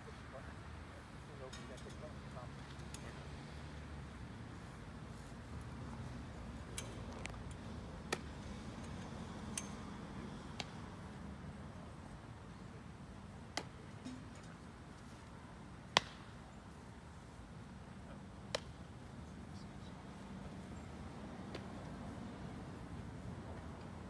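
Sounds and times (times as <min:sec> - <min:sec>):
low outdoor hum: 0:00.0 - 0:24.0
balls smacking into gloves: 0:08.0 - 0:08.4, 0:10.5 - 0:10.8, 0:13.5 - 0:14.4, 0:15.9 - 0:16.3, 0:18.5 - 0:18.8, 0:21.4 - 0:21.9
bats hitting softballs: 0:08.0 - 0:08.5, 0:10.4 - 0:11.1, 0:13.3 - 0:16.4, 0:18.4 - 0:19.0, 0:21.4 - 0:21.9.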